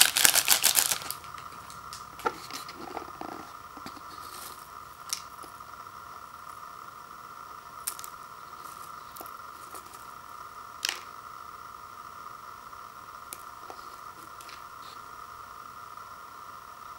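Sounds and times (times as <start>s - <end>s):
dry noodles crackling: 0.0s - 5.6s
steady hum: 0.0s - 16.9s.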